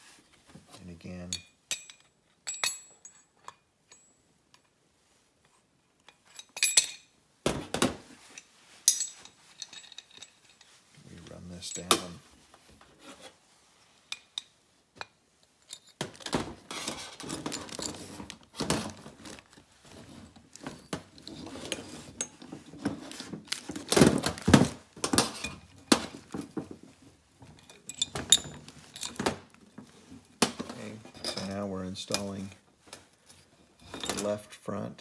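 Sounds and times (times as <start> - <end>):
metal tool clinking and scraping: 1.2 - 4.8, 5.4 - 7.2, 8.2 - 12.3, 12.9 - 23.9, 27.4 - 34.5.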